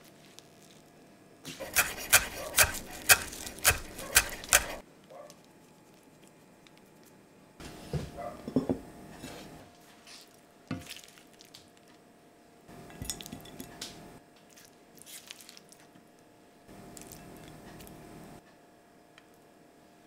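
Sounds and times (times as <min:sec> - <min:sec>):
spatula scraping pan: 0:01.5 - 0:04.8.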